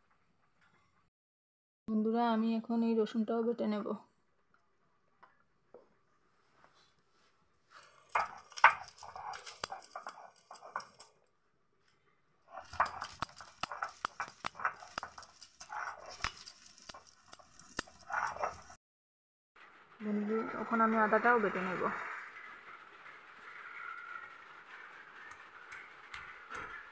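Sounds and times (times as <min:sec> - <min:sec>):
stone grinding garlic on slab: 0:08.1 - 0:11.1, 0:12.5 - 0:18.8.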